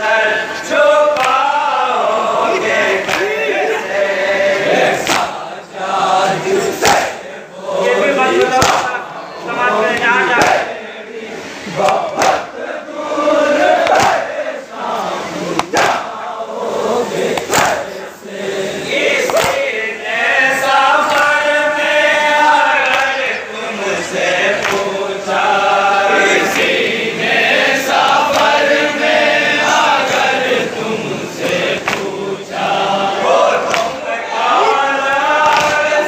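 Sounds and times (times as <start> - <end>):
men chanting a lament in unison: 0.0 - 36.0
chest-beating slaps: 1.2 - 1.4, 3.0 - 3.3, 5.0 - 5.4, 6.8 - 7.1, 8.5 - 8.9, 11.8 - 12.5, 13.8 - 14.2, 15.6 - 16.0, 17.4 - 17.8, 19.2 - 19.7, 33.6 - 34.0, 35.5 - 35.8.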